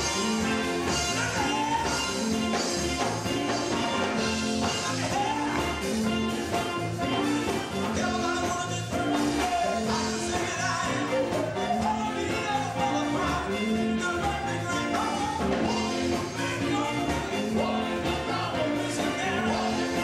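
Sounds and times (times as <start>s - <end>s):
band bass line: 0.0s - 20.0s
gospel singers on microphones: 0.0s - 20.0s.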